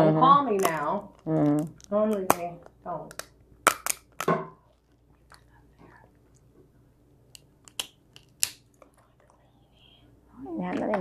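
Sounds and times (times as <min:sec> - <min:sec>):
crab shells cracking: 0:00.5 - 0:06.5, 0:07.2 - 0:09.4.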